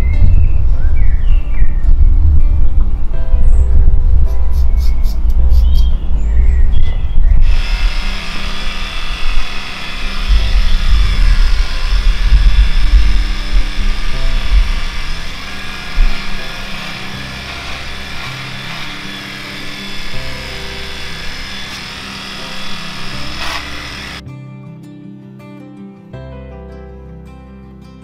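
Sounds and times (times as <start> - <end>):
background music: 2.0 - 6.3, 7.4 - 28.0
electric clippers buzzing: 7.4 - 24.2.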